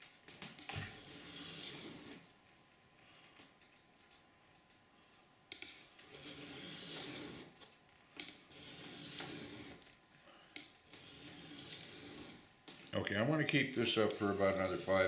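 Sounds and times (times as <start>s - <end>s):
knife scraping on sharpening stone: 0.8s - 2.3s, 5.6s - 7.6s, 8.5s - 9.9s, 10.9s - 12.4s.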